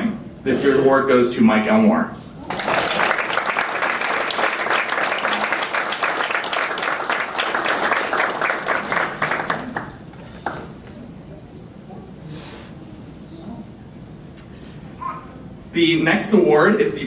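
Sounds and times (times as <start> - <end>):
audience applauding: 2.4 - 10.8.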